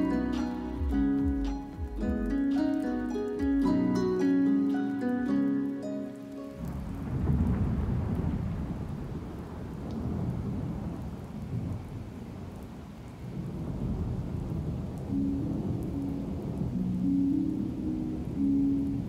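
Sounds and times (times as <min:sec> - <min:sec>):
musical notes: 0:00.0 - 0:07.7, 0:15.1 - 0:19.0
rain hissing: 0:00.0 - 0:19.0
thunder rumbling: 0:06.6 - 0:19.0.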